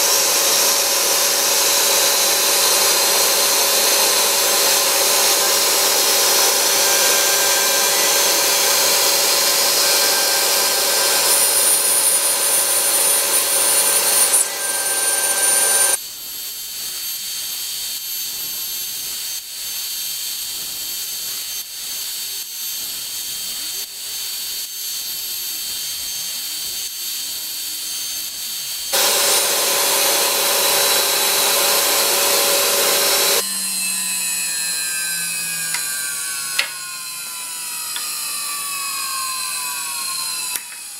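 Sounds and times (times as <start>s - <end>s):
end mill grinding metal: 0.0s - 16.0s, 29.0s - 40.9s
milling spindle whine: 0.0s - 16.0s, 28.9s - 40.9s.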